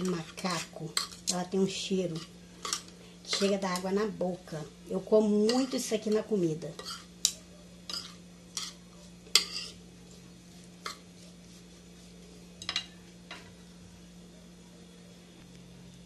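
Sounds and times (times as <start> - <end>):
faint low hum: 0.0 - 16.0
metal spoon scraping a plate: 6.7 - 9.8.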